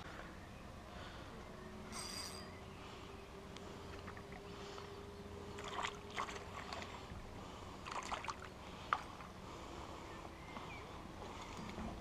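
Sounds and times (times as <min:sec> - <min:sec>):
fish splashing in water: 0:05.5 - 0:07.1, 0:07.8 - 0:09.1.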